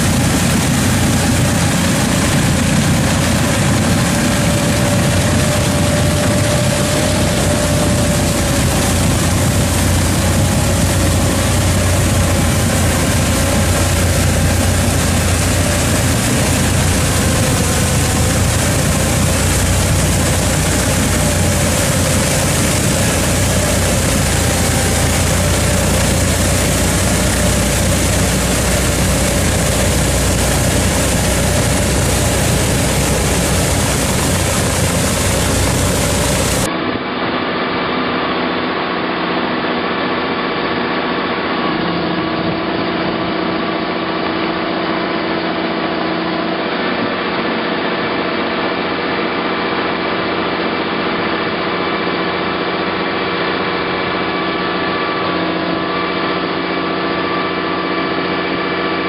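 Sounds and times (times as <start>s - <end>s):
faint steady whine: 0.0s - 59.0s
tractor ditcher heavy mechanical noise: 0.0s - 59.0s.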